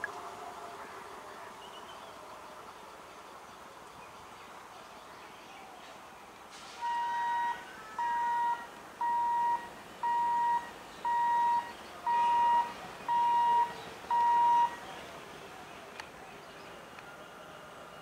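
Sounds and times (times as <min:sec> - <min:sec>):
electronic beeper beeps: 0:06.8 - 0:14.8.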